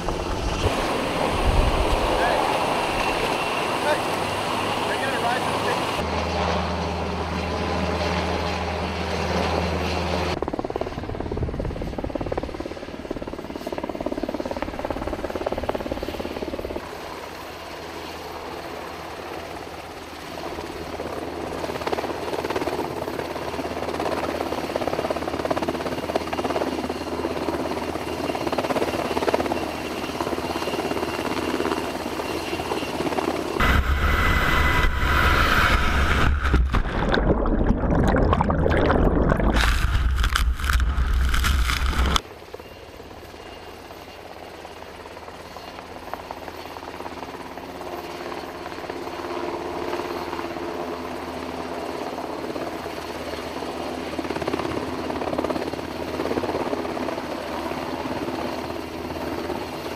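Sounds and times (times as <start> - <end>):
helicopter rotor and engines: 0.0 - 37.1, 39.2 - 59.9.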